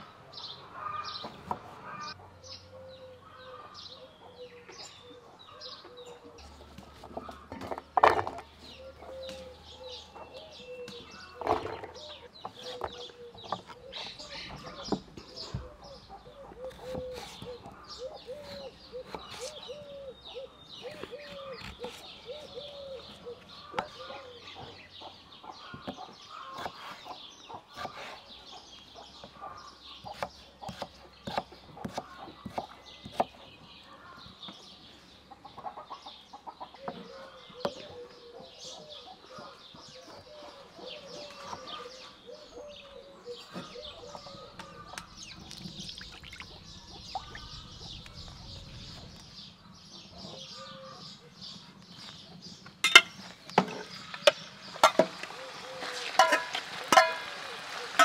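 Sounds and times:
knife chopping on wooden board: 0:30.0 - 0:33.4.

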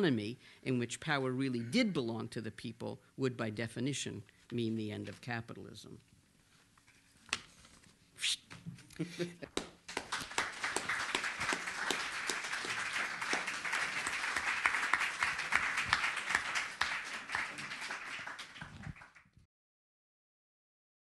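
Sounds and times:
audience applauding: 0:09.5 - 0:19.4.

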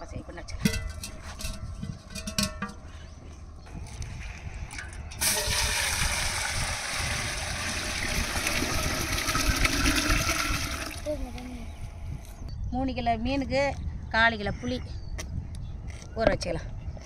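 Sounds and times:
water pouring into a metal pot: 0:04.7 - 0:11.1.

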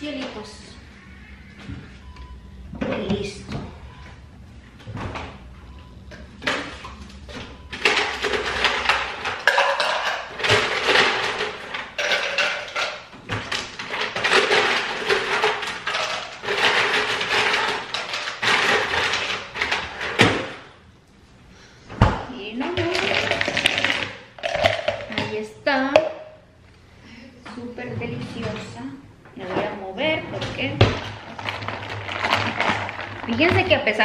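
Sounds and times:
ice cubes clinking in a jug: 0:22.8 - 0:25.1, 0:31.2 - 0:34.0.

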